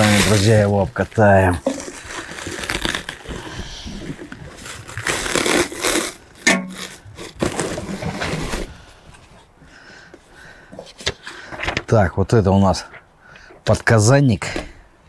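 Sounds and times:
plastic packaging crinkling: 0.0s - 8.7s.

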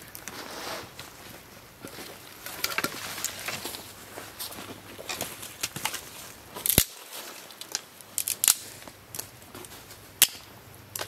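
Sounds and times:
dry sticks snapping: 5.0s - 11.0s.

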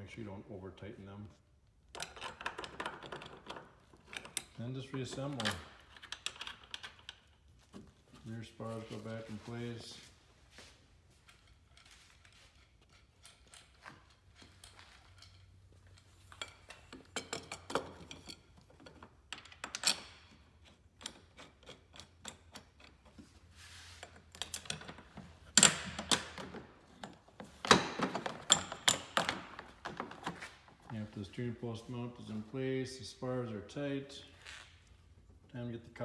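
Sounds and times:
plastic panels rattling and knocking: 24.7s - 30.5s.

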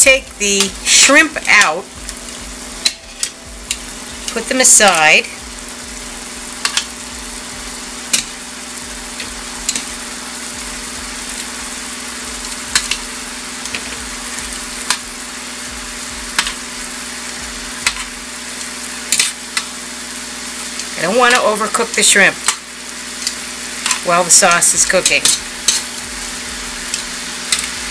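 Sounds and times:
sharp popping: 0.0s - 18.3s, 25.0s - 27.9s
low hum: 0.0s - 19.8s, 23.6s - 27.9s
sauce sizzling in a frying pan: 0.0s - 27.9s.

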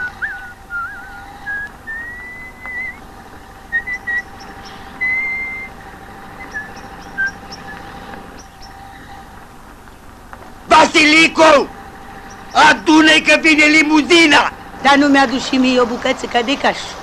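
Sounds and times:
faint high chirps: 0.0s - 3.0s, 3.7s - 5.8s
man whistling: 0.0s - 3.0s, 3.7s - 4.3s, 5.0s - 5.7s
faint soundtrack hum: 0.0s - 17.0s.

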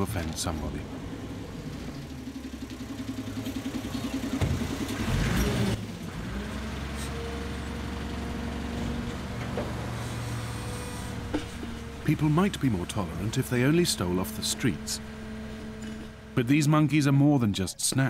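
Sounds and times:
vehicle engine running: 0.0s - 17.0s
rush of traffic noise: 9.3s - 12.2s.

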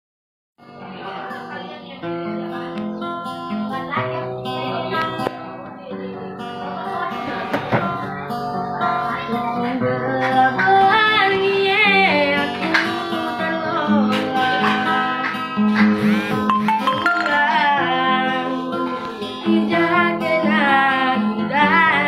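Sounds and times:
acoustic guitar chords: 0.6s - 22.0s
boy singing: 8.8s - 15.7s, 16.9s - 22.0s.

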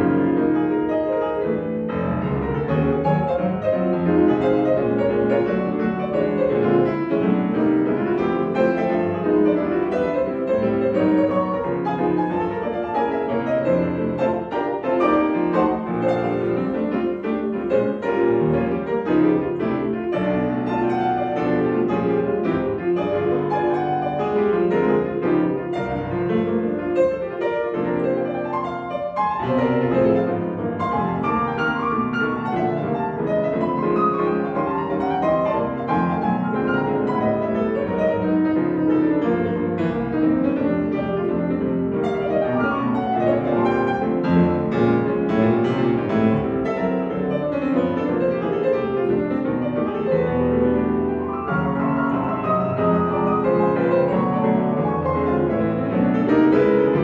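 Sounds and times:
grand piano classical piece: 0.0s - 57.0s.

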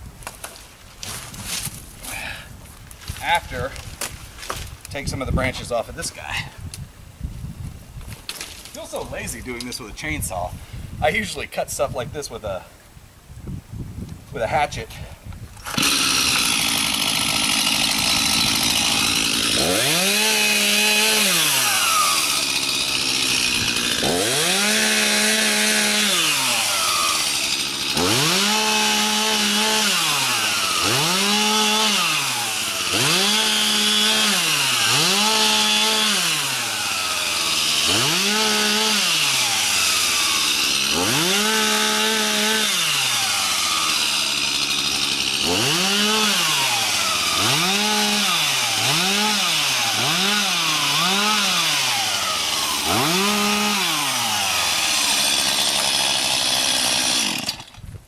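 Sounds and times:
chainsaw revving and idling: 15.6s - 57.9s.

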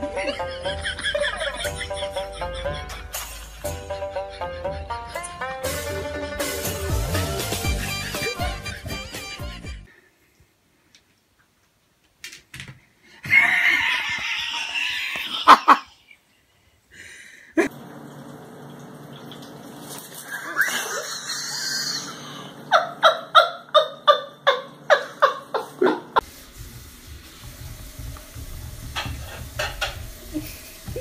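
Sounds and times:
person laughing: 0.0s - 9.1s, 13.2s - 16.2s, 20.2s - 26.2s.

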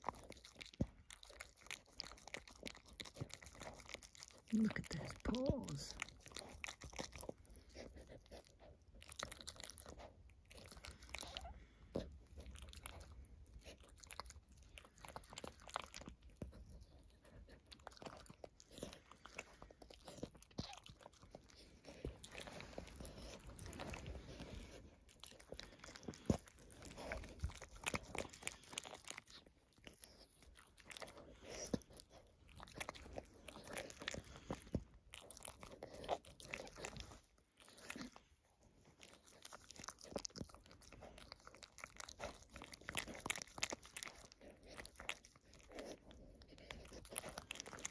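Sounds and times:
dog licking wetly: 0.0s - 47.9s.

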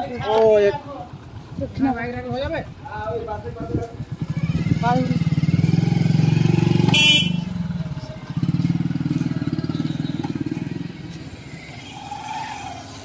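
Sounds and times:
motorcycle engine pulling away: 3.1s - 13.0s.

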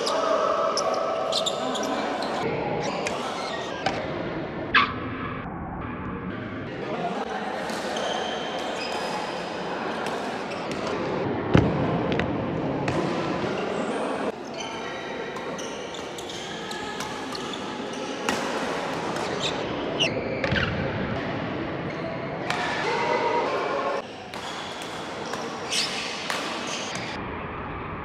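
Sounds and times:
shoes squeaking on court floor: 0.8s - 4.0s, 14.5s - 18.4s, 24.3s - 27.2s
rackets hitting shuttlecock: 18.2s - 19.6s, 22.4s - 22.9s, 24.3s - 27.1s.

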